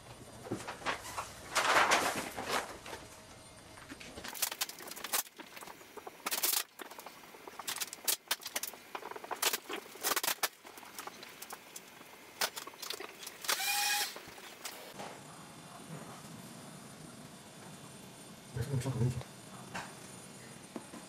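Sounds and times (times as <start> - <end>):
vinyl film crackling: 0.1 - 15.0.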